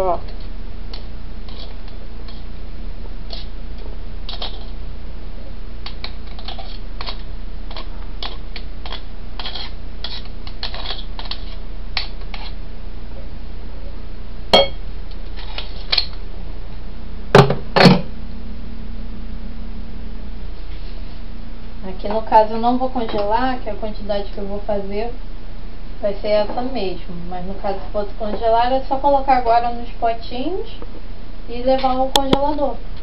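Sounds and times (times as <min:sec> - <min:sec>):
steady low hum: 0:00.0 - 0:33.0
dishes clinking: 0:14.6 - 0:14.8.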